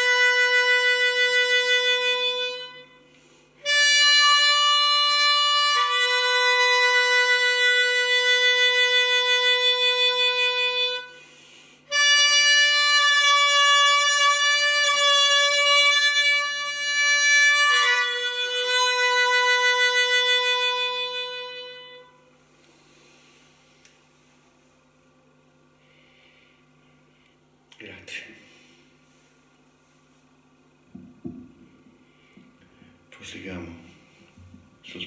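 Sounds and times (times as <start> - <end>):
harmonica slow melody: 0.0 - 24.8.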